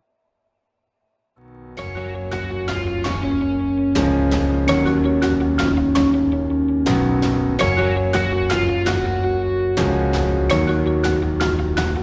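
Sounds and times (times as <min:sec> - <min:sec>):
steady bass: 0:01.6 - 0:12.0
plucked guitar notes: 0:01.8 - 0:12.0.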